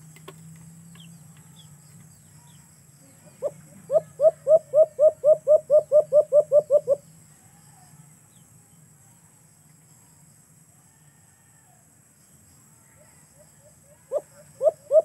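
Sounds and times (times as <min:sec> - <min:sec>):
dove cooing: 0:03.4 - 0:07.0, 0:14.1 - 0:15.0.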